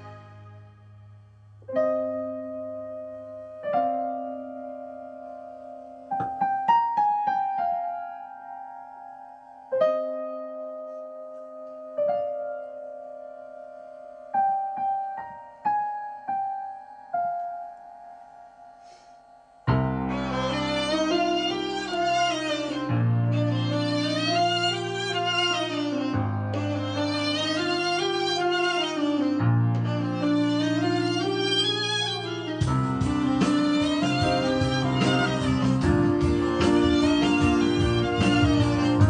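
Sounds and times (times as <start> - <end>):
slow solo piano music: 1.6 - 39.0.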